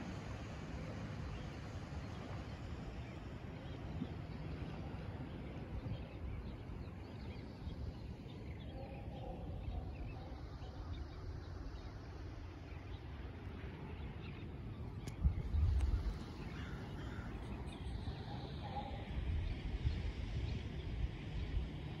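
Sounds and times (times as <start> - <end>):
low shoreline rumble: 0.0 - 22.0
distant bird calls: 2.9 - 19.9.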